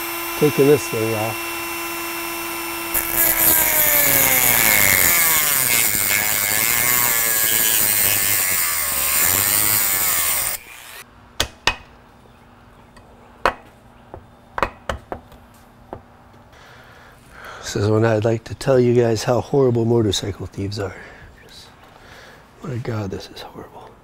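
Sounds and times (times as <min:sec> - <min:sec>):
rotary tool grinding metal: 0:00.0 - 0:11.0.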